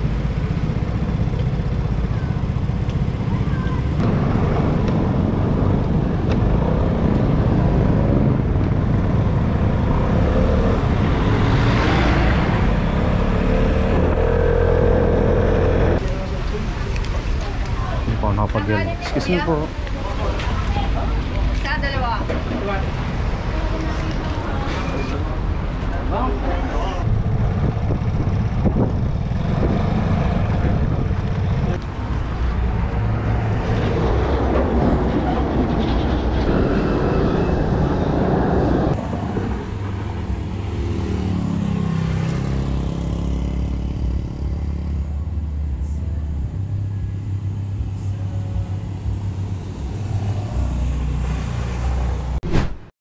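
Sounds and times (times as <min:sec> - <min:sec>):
road traffic noise: 0:00.0 - 0:52.8
vehicle engine running: 0:12.6 - 0:16.0.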